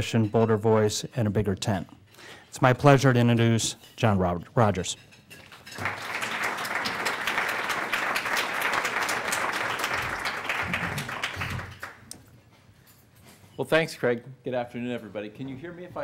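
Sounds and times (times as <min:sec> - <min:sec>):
audience applauding: 0:05.8 - 0:12.1.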